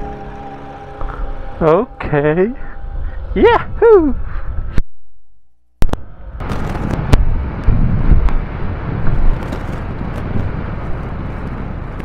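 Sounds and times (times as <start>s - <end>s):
wind rush on microphone: 2.0s - 4.8s, 5.8s - 12.0s
motorcycle rumble: 5.8s - 12.0s.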